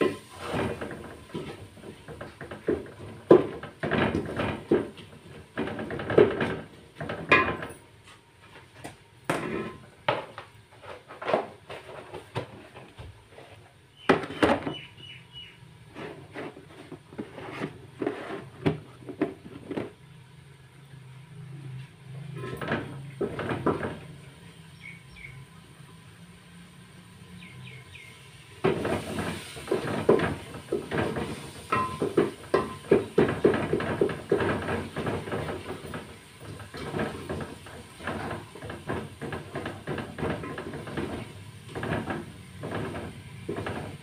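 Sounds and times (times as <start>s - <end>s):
ladle scraping metal pot: 0.0s - 7.7s, 9.3s - 10.0s, 15.9s - 19.9s, 28.6s - 44.0s
ladle knocks: 28.6s - 44.0s.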